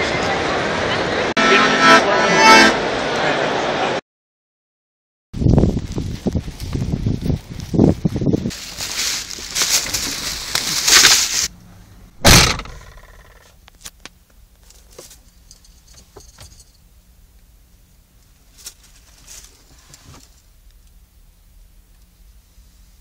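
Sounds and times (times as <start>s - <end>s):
microphone handling rustle: 5.4s - 11.5s
low steady hum: 7.4s - 23.0s.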